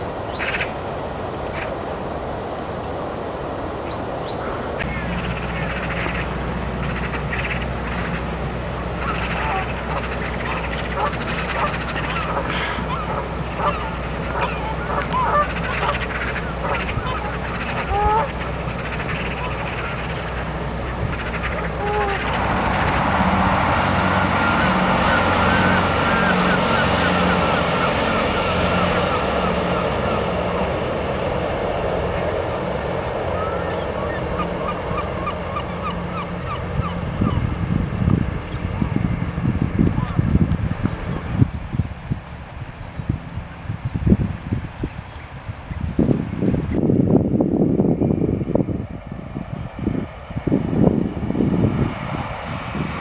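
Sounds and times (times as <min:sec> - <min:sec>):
birds honking: 0:00.0 - 0:01.8, 0:03.9 - 0:23.0, 0:23.8 - 0:30.8, 0:32.0 - 0:37.6, 0:38.5 - 0:40.3
steady low hum: 0:00.0 - 0:53.0
bus engine running: 0:04.6 - 0:43.7.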